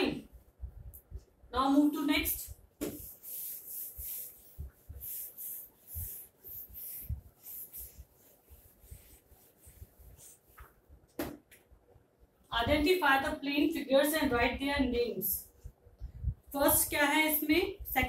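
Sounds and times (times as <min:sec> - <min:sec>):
whiteboard eraser rubbing: 0:02.8 - 0:10.8.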